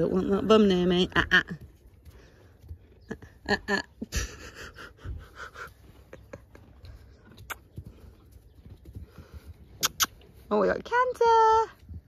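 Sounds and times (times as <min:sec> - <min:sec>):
horse snuffling and breathing: 0:04.1 - 0:10.6.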